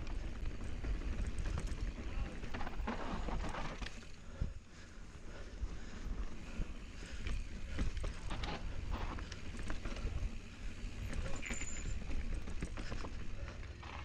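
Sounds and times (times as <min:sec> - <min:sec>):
tyres crunching over dirt: 0:00.0 - 0:04.1
bike rattles and clicks: 0:00.0 - 0:14.0.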